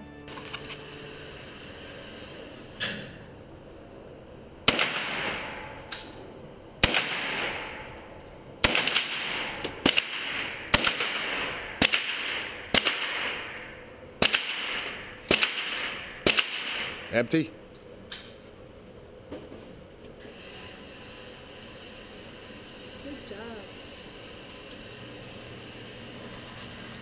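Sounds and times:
gunshots echoing: 0:04.6 - 0:05.8, 0:06.8 - 0:17.3.

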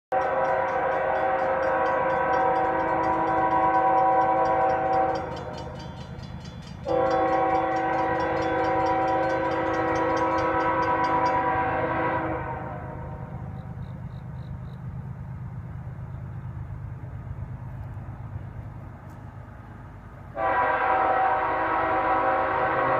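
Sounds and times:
locomotive air horn blasts: 0:00.1 - 0:05.8, 0:06.8 - 0:13.4, 0:20.3 - 0:22.9
low rumble of train: 0:00.1 - 0:22.9.

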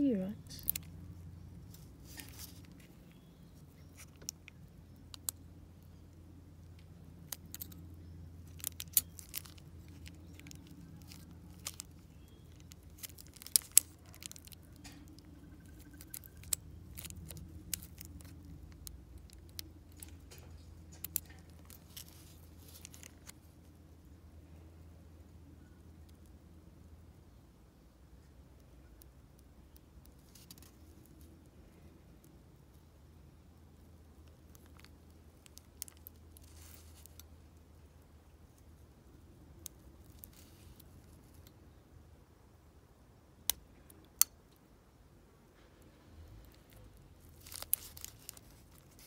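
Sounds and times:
plastic bag crinkling: 0:00.5 - 0:04.6, 0:08.4 - 0:23.4, 0:34.5 - 0:37.3, 0:47.2 - 0:49.0.

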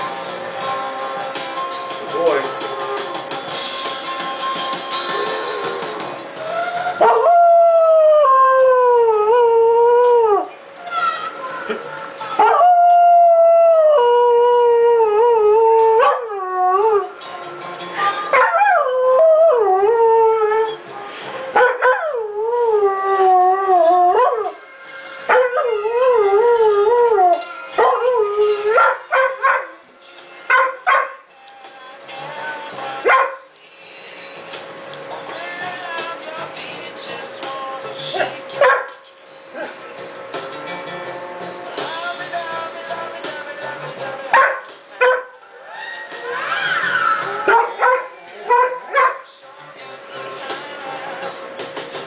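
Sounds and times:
music from speaker: 0:00.0 - 0:52.0
dog howling: 0:05.1 - 0:11.4, 0:12.4 - 0:17.2, 0:18.2 - 0:20.8, 0:21.6 - 0:29.8, 0:43.4 - 0:49.3
dog yipping: 0:28.8 - 0:29.8, 0:30.5 - 0:31.2, 0:33.1 - 0:33.4, 0:38.6 - 0:39.0, 0:43.6 - 0:45.4, 0:47.5 - 0:49.2.

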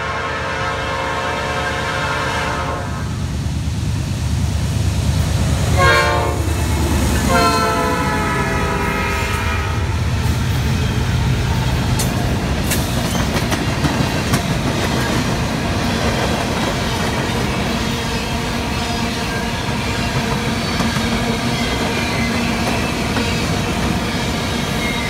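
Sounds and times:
locomotive horn blasts: 0:00.0 - 0:03.2, 0:05.7 - 0:06.5, 0:07.2 - 0:10.0
train wheels clicking over rail joints: 0:10.2 - 0:25.0.

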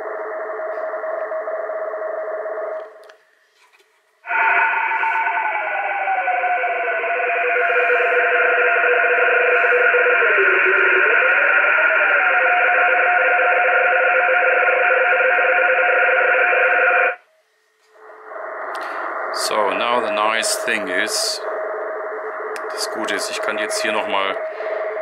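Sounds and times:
data signal tones: 0:07.1 - 0:17.2
radio hiss: 0:07.2 - 0:12.7, 0:18.2 - 0:25.0.

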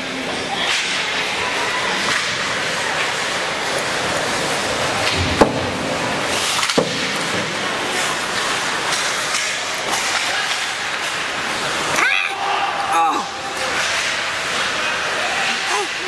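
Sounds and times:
skates on ice: 0:00.0 - 0:16.0
spectator noise: 0:09.8 - 0:16.0.

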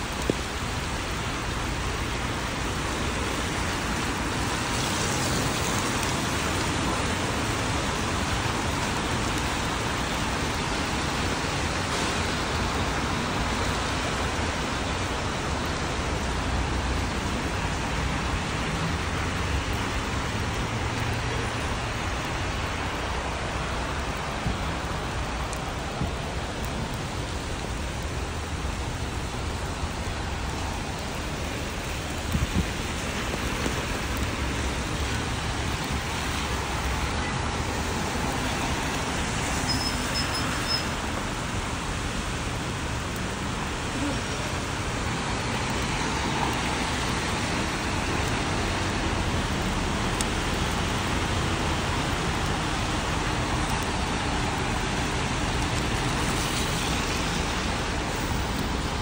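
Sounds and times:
car engines rumbling: 0:00.0 - 0:59.0
rain falling on streets: 0:00.0 - 0:59.0
tyres hissing through water: 0:00.0 - 0:59.0.

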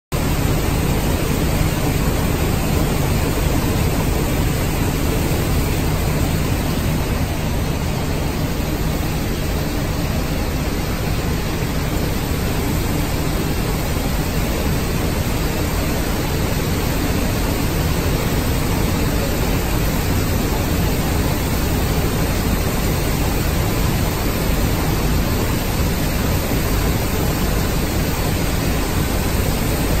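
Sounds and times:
conveyor machinery running: 0:00.1 - 0:30.0.

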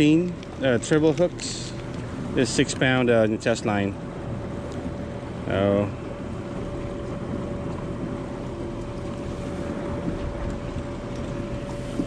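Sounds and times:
faint steady hum: 0:00.0 - 0:12.0
water noise: 0:00.0 - 0:12.0
wind buffeting microphone: 0:04.0 - 0:12.0.

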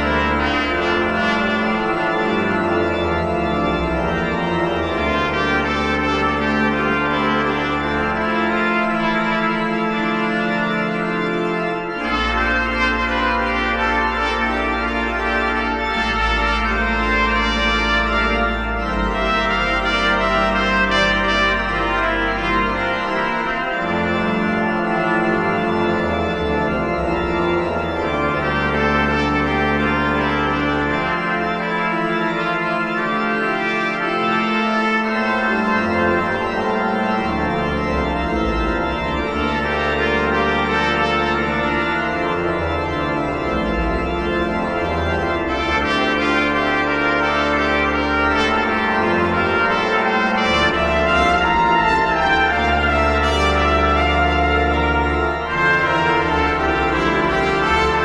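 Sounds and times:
organ chords: 0:00.0 - 0:58.0
trumpet playing: 0:12.0 - 0:23.6, 0:39.6 - 0:42.1, 0:45.4 - 0:58.0.

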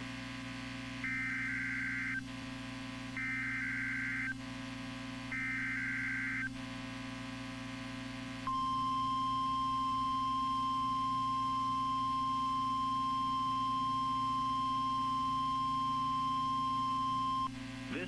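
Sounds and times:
receiver hum: 0:00.0 - 0:18.0
steady warning alarm tone: 0:01.0 - 0:02.3, 0:03.2 - 0:04.4, 0:05.3 - 0:06.6, 0:08.5 - 0:17.6.

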